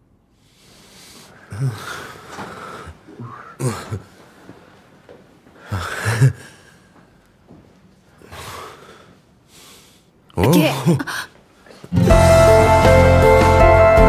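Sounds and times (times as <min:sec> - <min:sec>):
person breathing heavily: 0:00.4 - 0:04.7, 0:05.6 - 0:07.1, 0:08.1 - 0:10.2
breathy vocal sounds: 0:00.8 - 0:04.1, 0:05.6 - 0:06.9.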